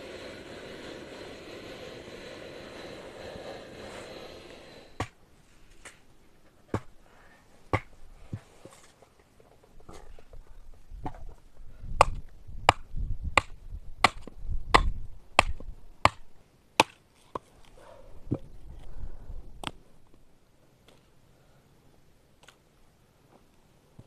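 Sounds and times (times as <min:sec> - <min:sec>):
hatchet chopping firewood: 0:06.7 - 0:07.0, 0:07.7 - 0:07.9, 0:12.0 - 0:17.5.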